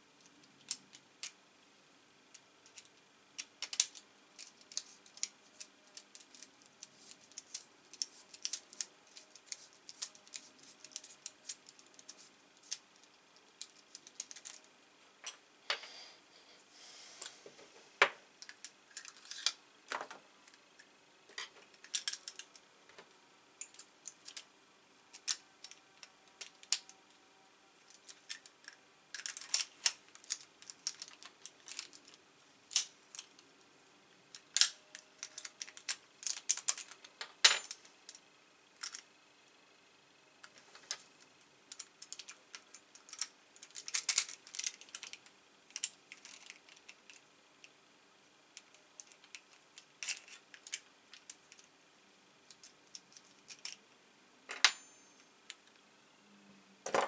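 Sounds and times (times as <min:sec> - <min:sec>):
small metal lock parts clicking: 0:02.6 - 0:12.8, 0:13.6 - 0:14.7, 0:21.4 - 0:22.6, 0:27.9 - 0:33.4, 0:34.3 - 0:38.2, 0:41.7 - 0:47.2, 0:48.6 - 0:51.6, 0:52.5 - 0:53.8.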